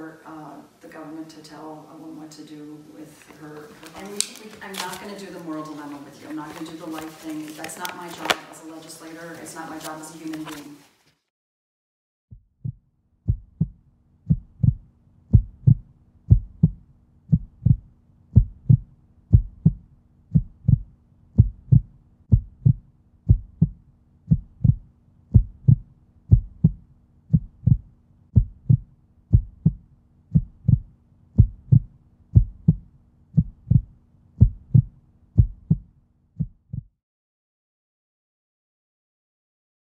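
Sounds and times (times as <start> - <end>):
faint steady hum: 0.0 - 10.9
heartbeat thumps: 12.3 - 37.0.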